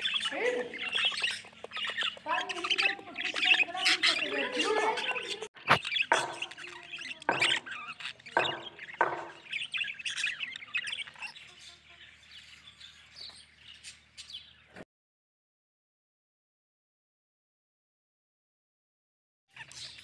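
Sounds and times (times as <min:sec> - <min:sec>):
budgerigars chattering and chirping: 0:00.0 - 0:14.8, 0:19.5 - 0:20.0
sharp loud bird calls: 0:00.0 - 0:14.8.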